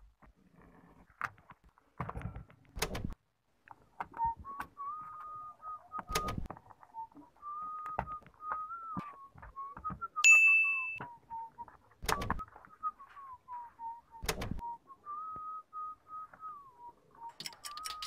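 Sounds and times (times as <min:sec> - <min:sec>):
whistled tune: 0:04.1 - 0:18.0
bright ding: 0:10.2 - 0:11.0.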